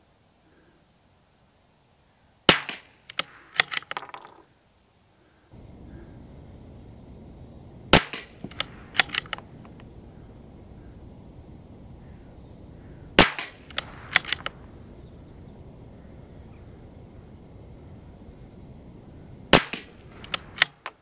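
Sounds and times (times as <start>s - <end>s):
rifle bolt metallic clicks: 2.7s - 4.4s, 8.1s - 9.8s, 13.4s - 14.6s, 19.7s - 21.0s
rifle shots: 7.9s - 9.5s, 13.2s - 14.6s, 19.5s - 20.8s.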